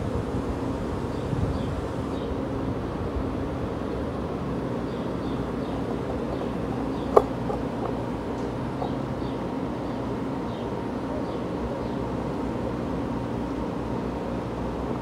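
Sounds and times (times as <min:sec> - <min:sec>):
electric train motors humming: 0:00.0 - 0:15.0.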